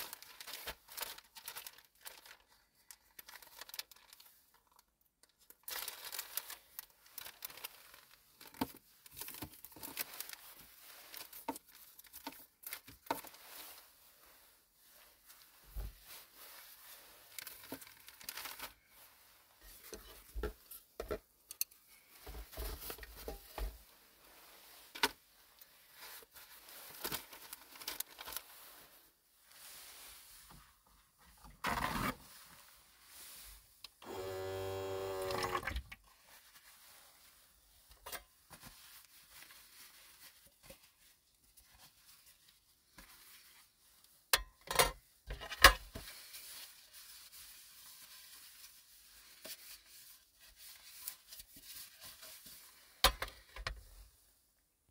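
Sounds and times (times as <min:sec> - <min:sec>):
paper towel tearing: 0:34.0 - 0:35.8.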